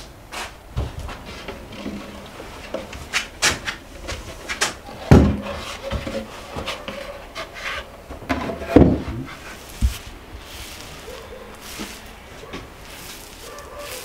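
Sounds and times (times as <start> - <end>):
wooden board knocks and scrapes: 0.8 - 10.1
heavy wooden thump: 8.3 - 10.0.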